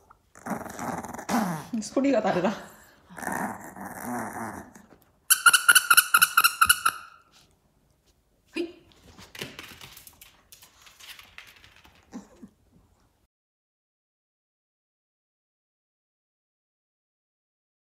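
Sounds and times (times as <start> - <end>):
squeaky dog toy squeaking: 5.3 - 7.3
rustling and shuffling: 7.2 - 13.3.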